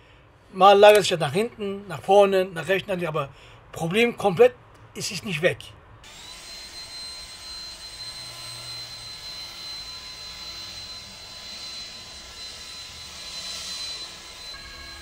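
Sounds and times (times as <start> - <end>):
leaf blower running: 6.0 - 15.0.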